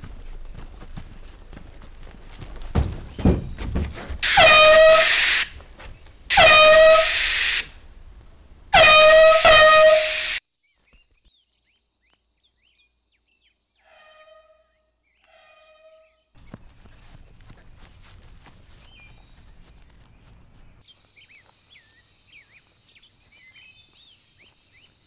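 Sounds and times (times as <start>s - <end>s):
air horn blasts: 4.2s - 5.6s, 6.3s - 7.8s, 8.7s - 10.4s, 13.8s - 16.2s.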